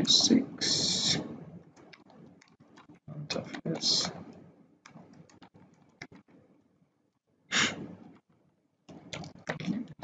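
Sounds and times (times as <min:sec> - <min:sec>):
keyboard typing clicks: 0:01.6 - 0:06.3
short rush of breath-like noise: 0:07.5 - 0:08.0.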